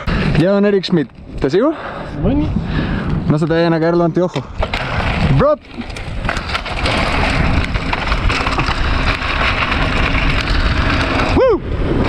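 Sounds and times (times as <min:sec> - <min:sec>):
bike tyres crunching over gravel: 0:02.8 - 0:12.0.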